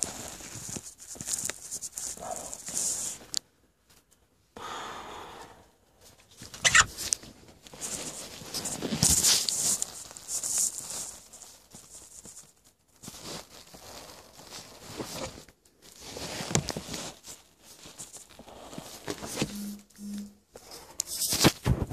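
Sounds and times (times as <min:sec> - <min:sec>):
rustling and scuffing of phone handling: 0:06.3 - 0:21.9
short low tones: 0:19.4 - 0:20.5.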